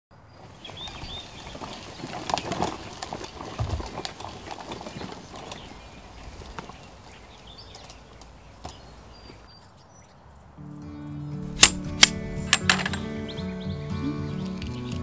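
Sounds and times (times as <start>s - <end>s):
wagon wheels and frame rattling: 0.2s - 10.0s, 11.4s - 13.8s
footsteps on grass: 0.4s - 9.7s.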